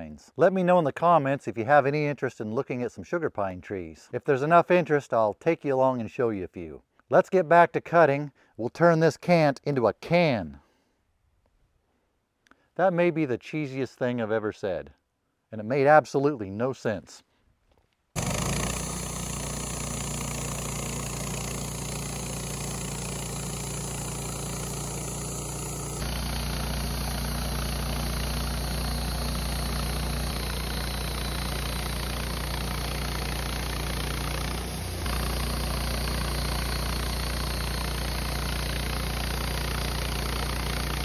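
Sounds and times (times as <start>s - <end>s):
band sawmill sawing wood: 18.2s - 41.0s.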